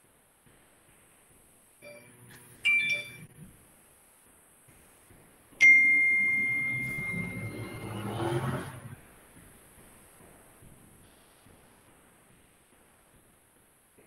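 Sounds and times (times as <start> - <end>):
bell-like chimes: 2.7 - 3.2, 5.6 - 8.3
low rumble: 6.2 - 9.0.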